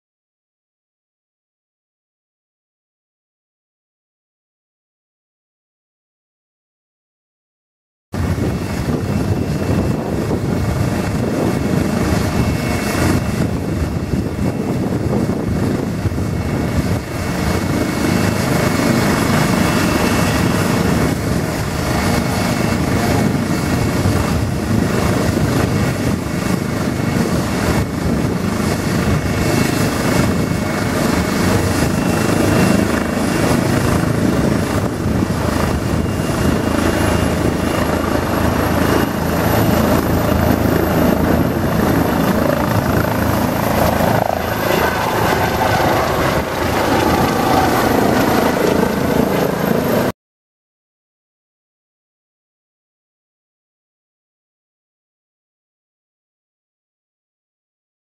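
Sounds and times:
high turbine whine: 8.2s - 50.1s
helicopter rotor and turbine noise: 8.2s - 50.2s.

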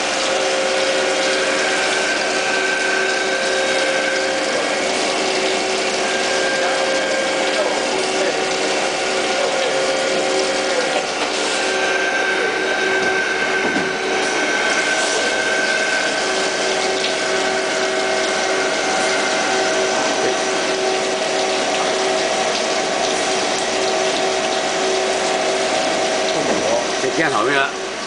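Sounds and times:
coolant hissing and splashing: 0.0s - 28.0s
lathe machining: 0.0s - 28.0s.

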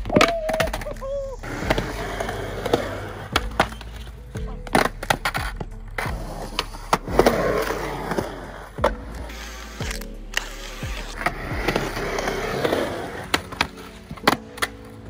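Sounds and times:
skateboard deck clacking: 0.0s - 15.0s
skateboard wheels rolling: 0.0s - 15.0s
skateboard scraping ledge: 6.2s - 14.8s.

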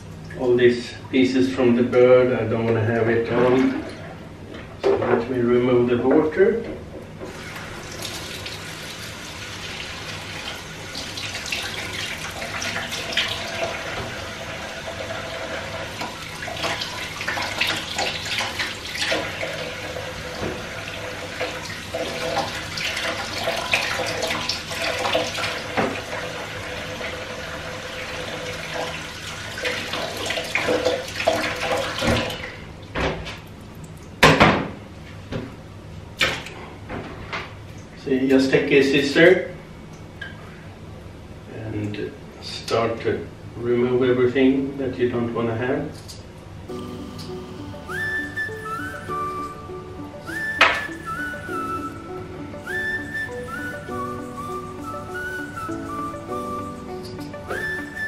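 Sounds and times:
tap water splashing in sink: 15.9s - 19.7s, 21.4s - 26.2s, 29.6s - 33.2s.

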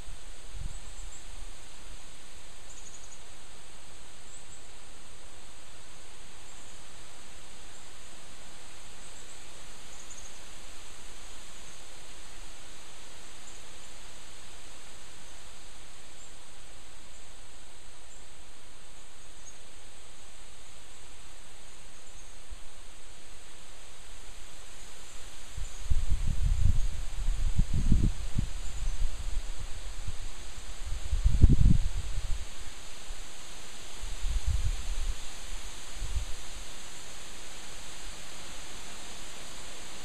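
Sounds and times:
wind rustling leaves: 0.0s - 40.0s
faint bird chirps: 0.6s - 1.6s, 2.5s - 3.4s, 6.4s - 7.0s, 8.9s - 10.6s, 18.0s - 19.8s, 21.6s - 22.5s, 24.7s - 27.4s.

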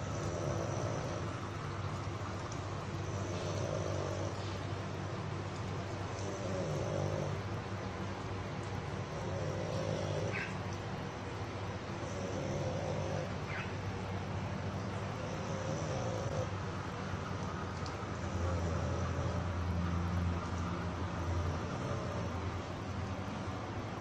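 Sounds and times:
dog snoring: 0.0s - 1.6s, 3.0s - 4.7s, 6.1s - 7.5s, 9.0s - 10.5s, 11.9s - 13.6s, 15.1s - 16.6s, 18.2s - 19.7s, 21.2s - 22.6s.

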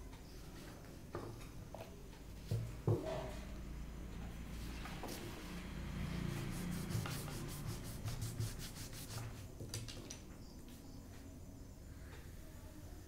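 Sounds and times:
rubbing strokes on paper: 6.2s - 9.5s.

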